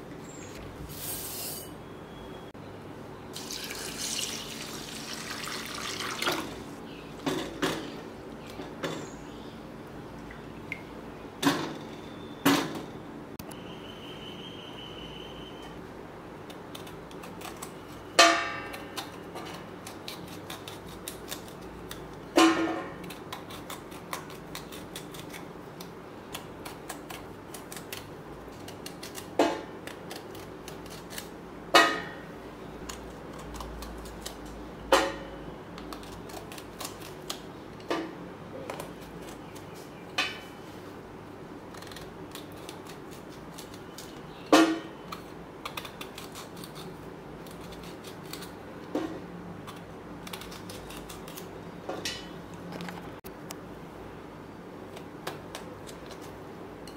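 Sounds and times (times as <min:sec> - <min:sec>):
knife scraping fruit rind: 0:16.5 - 0:31.4, 0:41.6 - 0:48.6, 0:49.6 - 0:51.6.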